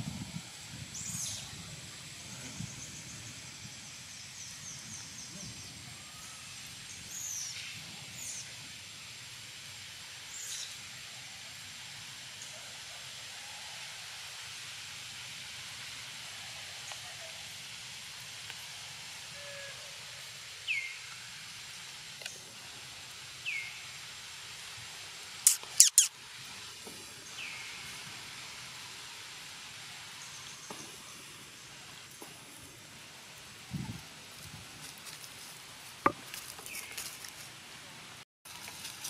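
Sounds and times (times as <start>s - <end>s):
outdoor hiss: 0.0s - 39.0s
high downward-sliding chirps: 25.5s - 26.1s.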